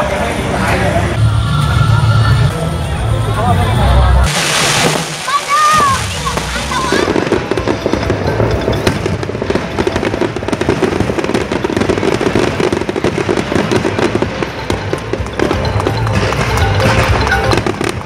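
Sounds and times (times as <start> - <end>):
fireworks bursting and crackling: 4.2 - 18.0.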